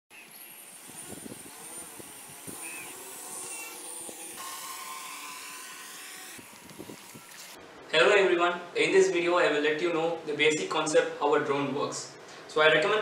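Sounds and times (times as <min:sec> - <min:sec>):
drone propellers buzzing: 0:00.2 - 0:07.6.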